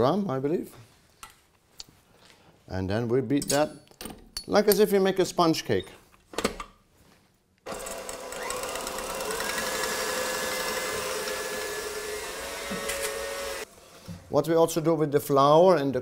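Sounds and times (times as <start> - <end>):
stand mixer motor whining: 7.7 - 13.7
wire whisk beating eggs: 7.8 - 13.6.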